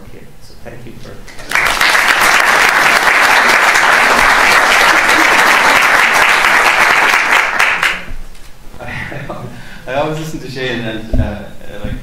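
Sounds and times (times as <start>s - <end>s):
audience applauding: 1.3s - 8.1s.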